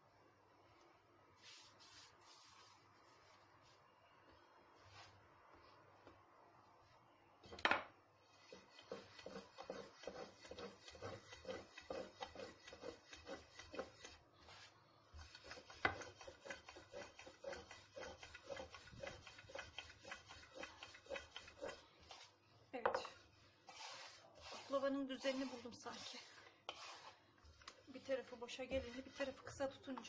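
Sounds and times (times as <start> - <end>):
rolling pin on glass tray: 23.7 - 27.1.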